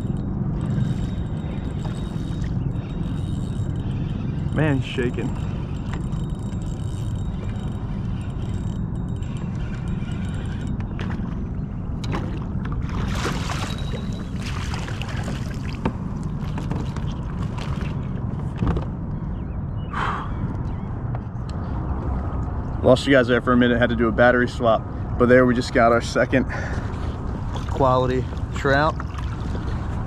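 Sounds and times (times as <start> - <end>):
steady low rumble: 0.0 - 30.0
fish thrashing and splashing: 5.3 - 18.3, 27.1 - 30.0.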